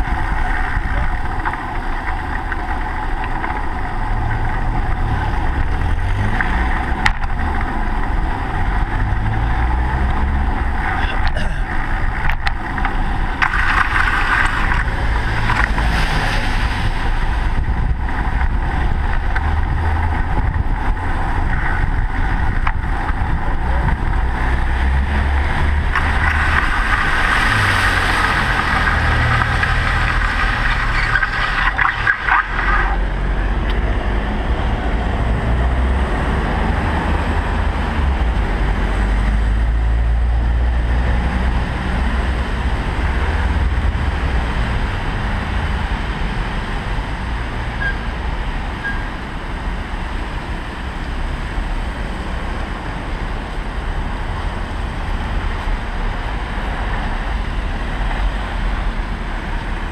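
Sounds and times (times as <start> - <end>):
car traffic rumbling past: 0.0 - 59.9
wind noise on microphone: 0.0 - 59.9.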